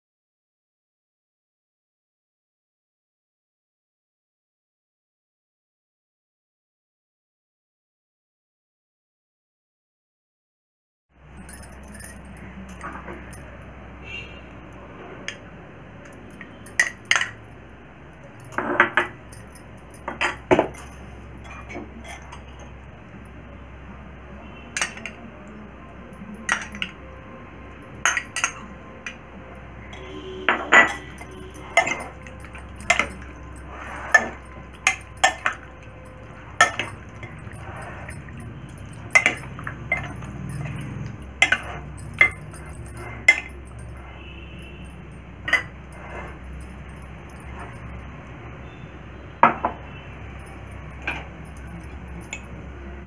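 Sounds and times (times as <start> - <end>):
spoon clinking against glass bowls: 16.0 - 17.6, 18.2 - 23.3, 24.7 - 25.6, 26.2 - 27.0, 27.7 - 29.2, 30.0 - 48.0, 49.7 - 53.0.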